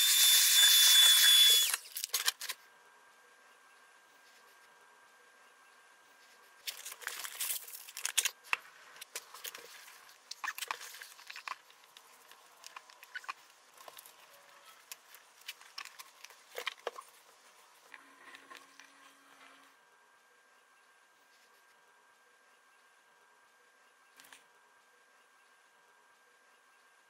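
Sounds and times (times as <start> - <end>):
paper rustling: 6.2 - 14.2.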